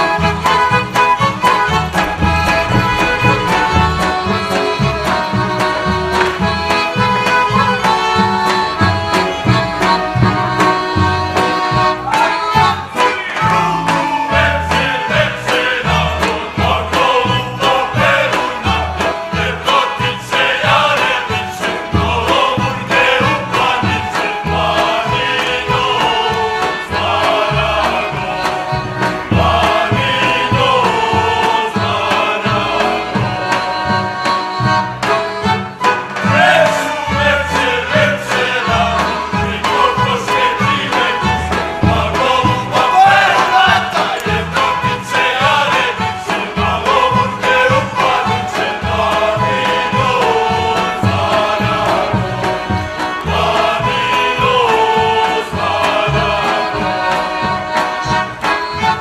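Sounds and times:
accordion dance tune: 0.0s - 59.0s
pulsing bass beat: 1.3s - 5.8s
men singing together: 12.1s - 34.1s, 35.8s - 58.2s.

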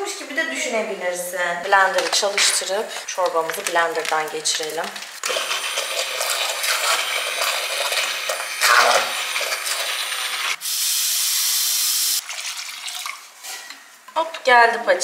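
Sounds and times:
hand blender whining buzz: 5.2s - 12.2s.

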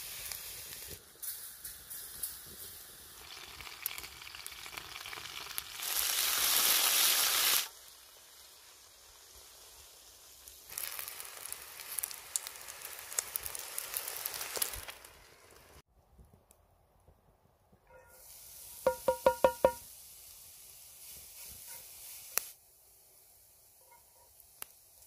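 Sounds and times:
chicken frying in oil: 1.9s - 15.8s, 18.6s - 22.6s.

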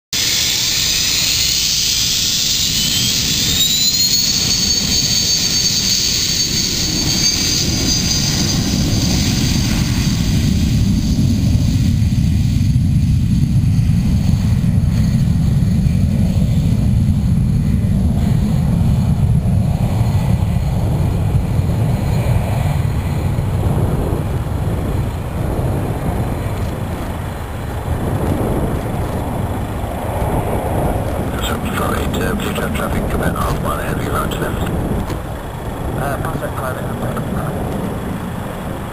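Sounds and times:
jet engine whine: 0.2s - 38.9s
jet low rumble: 0.2s - 38.9s.

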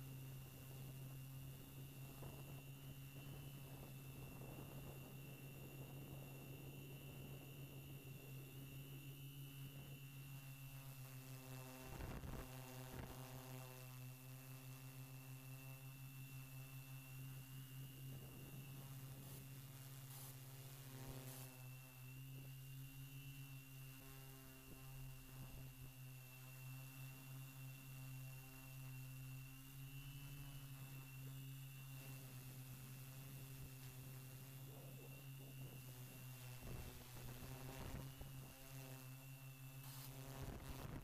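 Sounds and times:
thin high whine: 0.0s - 41.0s
drone motors humming: 16.5s - 41.0s.

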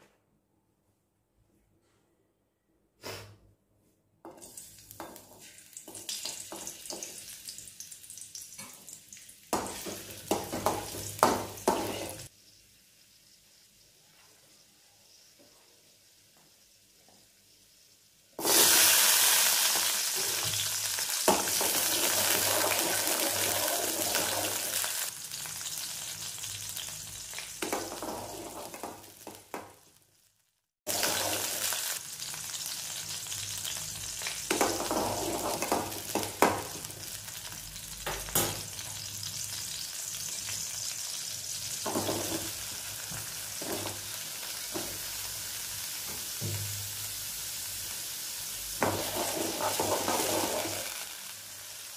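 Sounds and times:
food sizzling in hot oil: 4.3s - 51.9s
metal spatula scraping pan: 48.8s - 51.0s.

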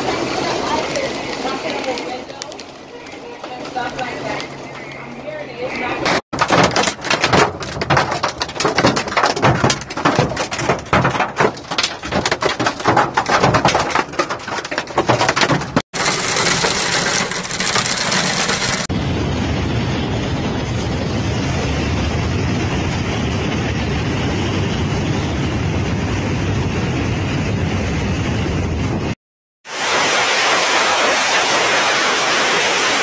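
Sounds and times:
hiss of hail and rain: 0.0s - 4.5s, 16.0s - 18.9s, 29.6s - 33.0s
hail clattering on car: 6.4s - 18.9s.

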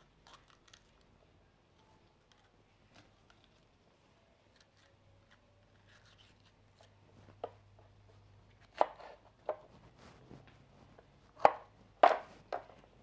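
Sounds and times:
knife chopping on wooden board: 11.4s - 12.7s.

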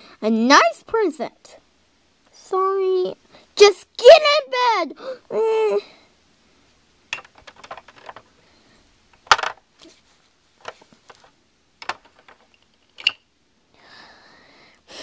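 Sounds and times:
plastic toys clicking and knocking: 7.1s - 8.3s, 9.2s - 9.6s, 10.6s - 13.2s.

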